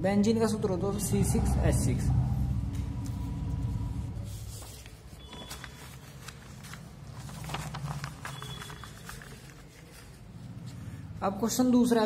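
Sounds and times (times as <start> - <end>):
low steady hum: 0.0 - 11.8
paper rustling: 4.2 - 11.2.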